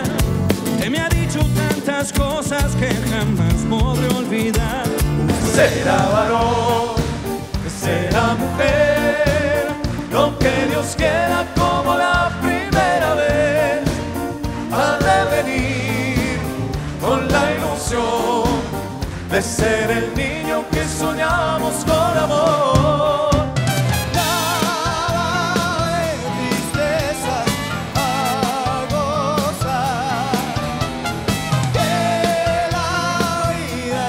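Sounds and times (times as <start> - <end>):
live band playing: 0.0 - 34.0
men singing: 0.0 - 34.0.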